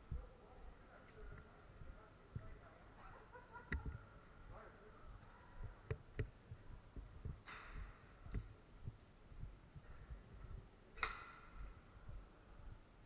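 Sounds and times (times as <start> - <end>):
short sharp cracks: 11.0 - 11.6.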